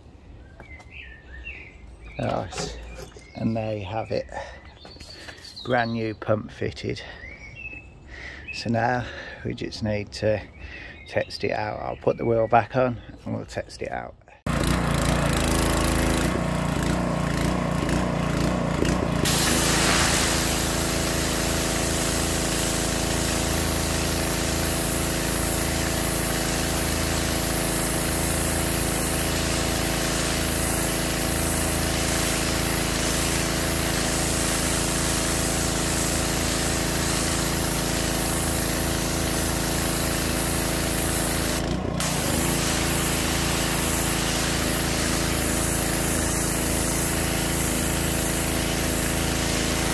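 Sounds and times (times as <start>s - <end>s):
pressure washer engine running: 2.2s - 3.4s, 14.5s - 49.9s
high-pressure water jet hissing: 18.8s - 49.9s.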